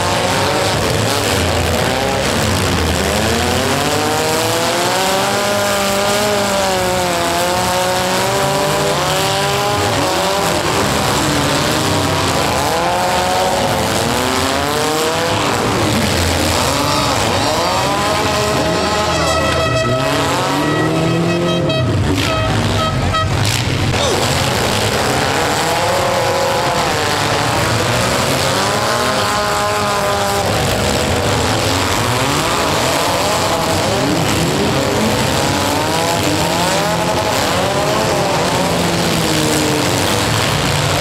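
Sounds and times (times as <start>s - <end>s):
car engines revving: 0.0s - 41.0s
steady pitched tone: 18.2s - 23.4s.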